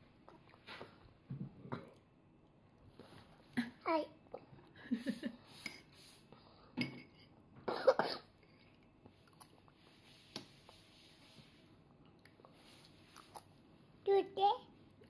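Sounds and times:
person coughing: 7.7 - 8.3.

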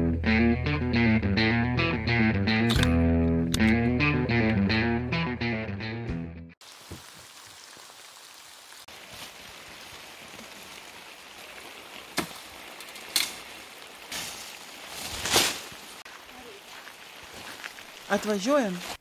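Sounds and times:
leafy branches rustling: 8.7 - 19.0
branches snapping: 12.1 - 13.4, 14.1 - 15.9.

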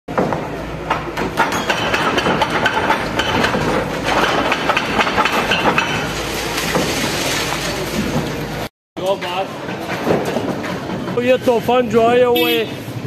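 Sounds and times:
excavator engine running: 0.1 - 8.7
breaking masonry and tumbling rubble: 1.0 - 8.7.

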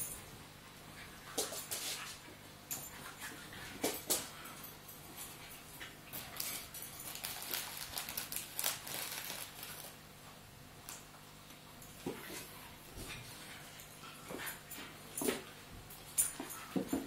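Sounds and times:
dogs play fighting: 0.9 - 6.9, 11.8 - 17.0.

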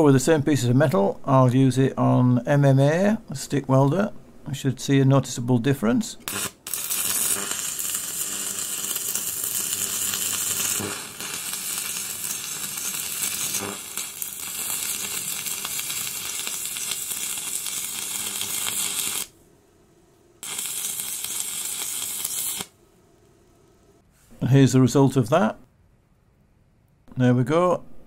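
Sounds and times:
welding arc crackling sizzle: 6.2 - 19.4, 20.4 - 22.8.

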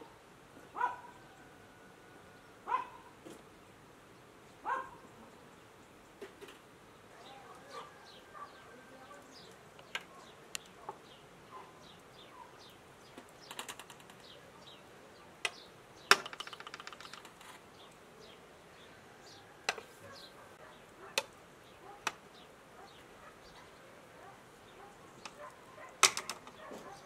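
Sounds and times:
skewers rattling clatter: 13.2 - 14.4, 16.0 - 17.6, 25.2 - 27.0.

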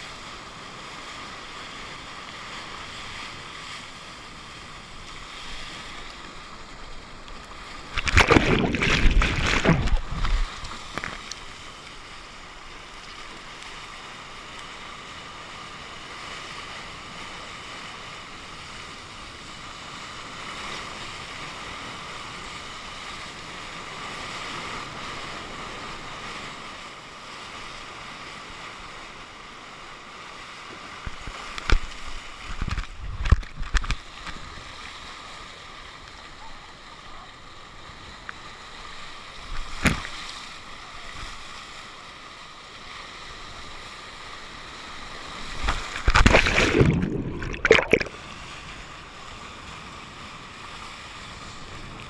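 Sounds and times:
water rushing along a surfboard: 0.0 - 52.0
water splashing against board: 7.8 - 11.5, 39.5 - 40.5, 45.5 - 48.2.

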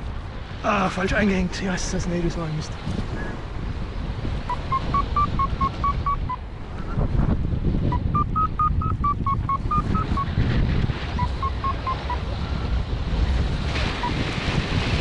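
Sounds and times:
wind on microphone: 0.0 - 15.0
variometer beeping: 4.5 - 7.0, 7.9 - 10.4, 11.2 - 12.3.

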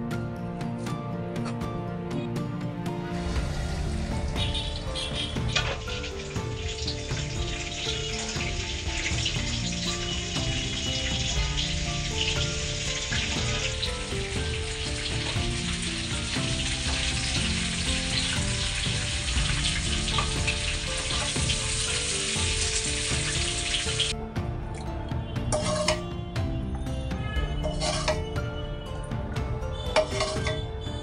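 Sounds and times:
background music: 0.0 - 31.0
chicken frying in oil: 3.4 - 24.1, 27.6 - 28.2, 29.9 - 30.6.

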